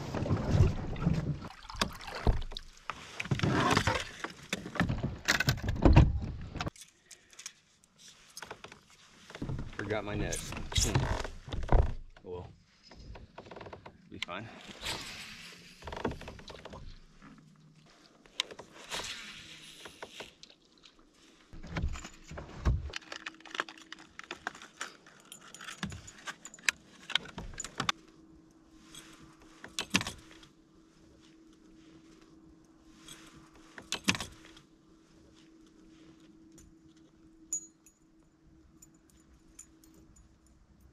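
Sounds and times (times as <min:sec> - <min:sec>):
faint steady hum: 0:16.4 - 0:40.9
metallic clinks and rattles: 0:23.0 - 0:27.9, 0:37.5 - 0:40.9.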